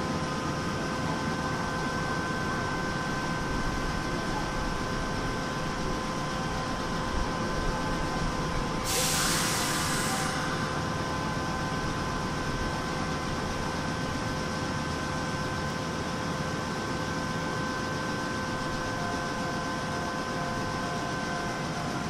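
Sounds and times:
steady tonal whine: 0.0s - 22.0s
compressed air hiss: 8.8s - 10.5s.

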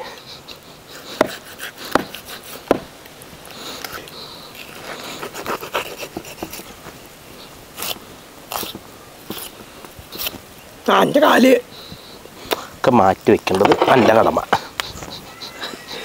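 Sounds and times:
knife scraping meat: 0.9s - 2.7s, 4.5s - 6.7s.

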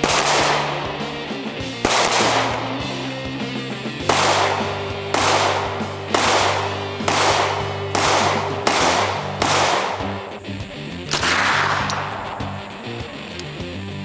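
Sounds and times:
handgun shots with echo: 0.0s - 10.4s, 11.1s - 13.4s
background music with sustained chords: 0.0s - 14.0s.

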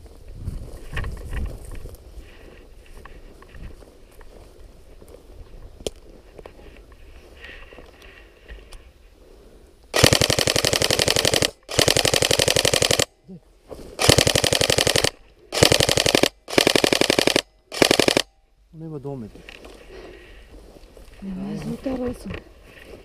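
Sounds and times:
airsoft rifle firing bursts: 9.9s - 13.1s, 14.0s - 18.3s.

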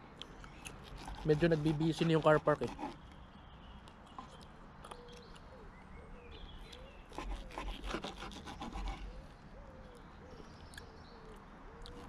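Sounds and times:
knife sawing through steak: 0.8s - 3.0s, 7.1s - 9.1s.

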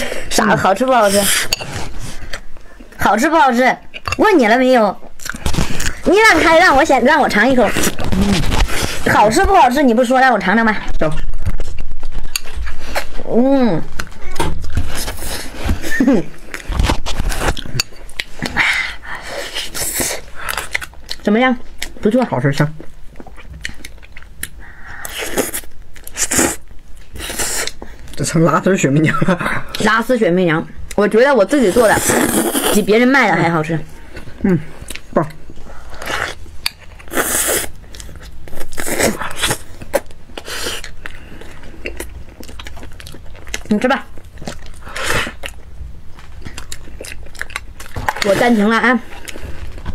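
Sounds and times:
wet chewing and slurping: 34.1s - 49.9s.

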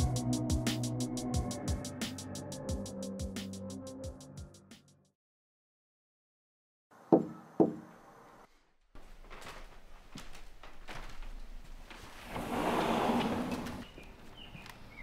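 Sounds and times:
knocks on wooden door: 7.1s - 7.8s.

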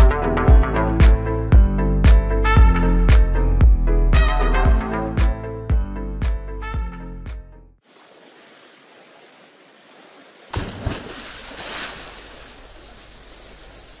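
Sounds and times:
background music: 0.0s - 7.8s
faint hiss: 7.8s - 14.0s
water splash rush: 7.9s - 13.0s.

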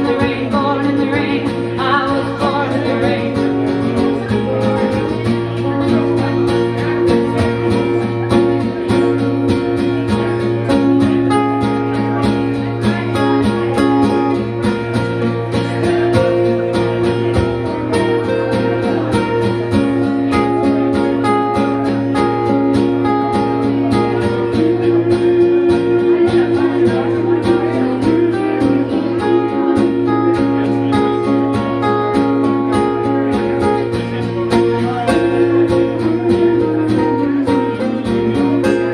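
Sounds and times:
acoustic guitar strumming: 0.0s - 38.9s
guitar melody notes: 0.0s - 38.9s.

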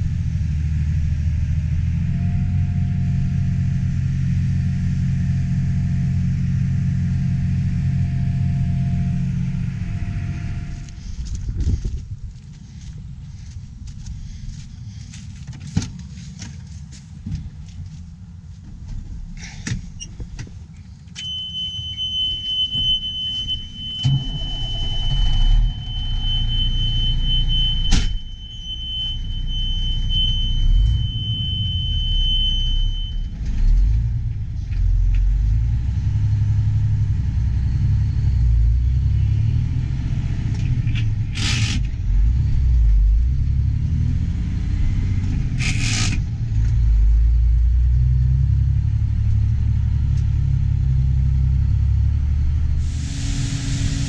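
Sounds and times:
diesel engine rumble: 0.0s - 54.0s
high beeping warning tone: 21.2s - 33.3s
sharp knock: 27.9s - 28.2s.

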